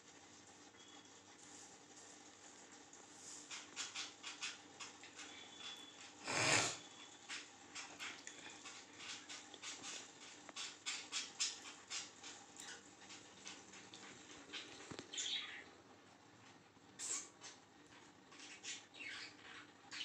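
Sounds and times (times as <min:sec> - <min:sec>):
budgerigars chirping: 0:18.4 - 0:20.0.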